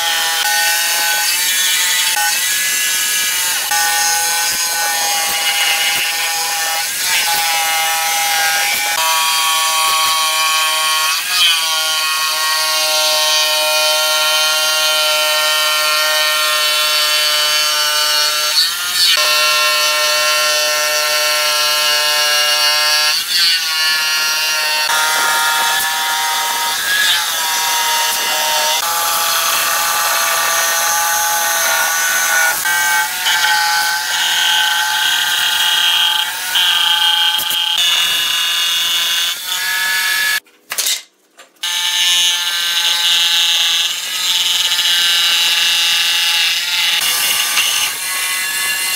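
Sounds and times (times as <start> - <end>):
jigsaw cutting wood: 0.0 - 39.5, 41.6 - 48.9.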